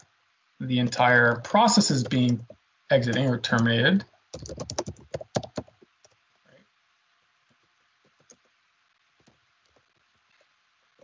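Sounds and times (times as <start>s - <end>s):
typing on a keyboard: 1.8s - 3.7s, 4.3s - 6.2s, 8.1s - 8.4s.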